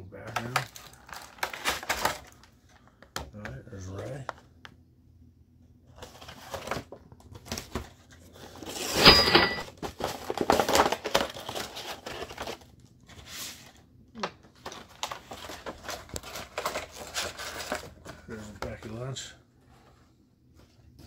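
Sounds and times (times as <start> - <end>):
plastic packaging crinkling: 0.2 - 2.5, 9.8 - 13.0, 14.6 - 18.1.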